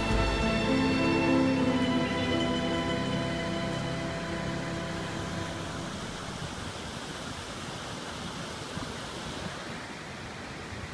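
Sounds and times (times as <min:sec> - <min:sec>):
song: 0:00.0 - 0:06.4
river flowing over boulders: 0:00.0 - 0:10.9.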